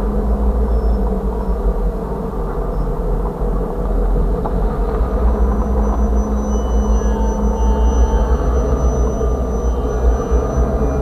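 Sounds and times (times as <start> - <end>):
freight cars rumbling on rails: 0.0 - 11.0.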